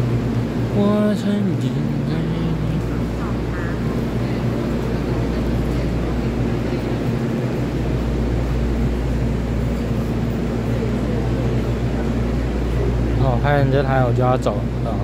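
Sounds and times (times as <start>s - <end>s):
electric train humming: 0.0s - 15.0s.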